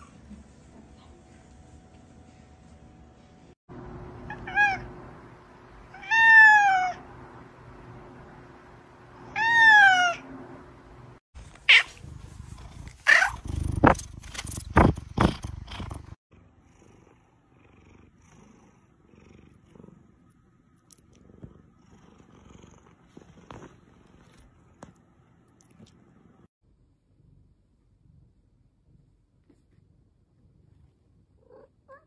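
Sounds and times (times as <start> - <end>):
cat meowing: 4.3 - 4.9, 5.9 - 7.0.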